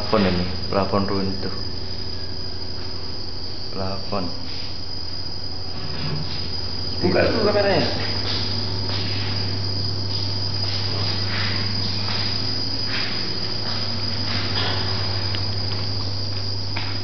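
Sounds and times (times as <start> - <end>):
constant low hum: 0.0 - 17.0
soft footsteps on hard floor: 7.8 - 17.0.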